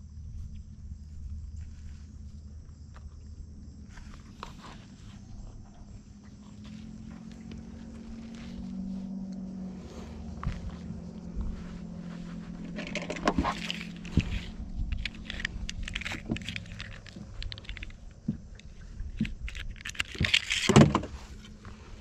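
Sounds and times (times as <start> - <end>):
steady low hum: 0.0 - 22.0
fishing tackle clinking and rattling: 12.7 - 20.9.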